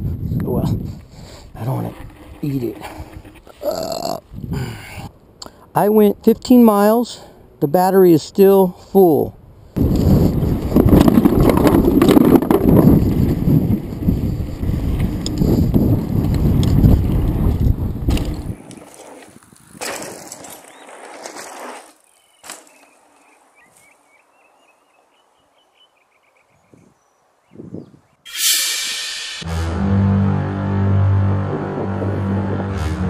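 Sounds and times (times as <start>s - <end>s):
wind buffeting on camera: 0.0s - 5.1s, 9.4s - 19.8s, 26.6s - 28.1s
bike rattling: 1.5s - 4.2s, 9.8s - 23.6s
tyres rumbling on dirt: 1.5s - 4.3s, 9.8s - 23.2s.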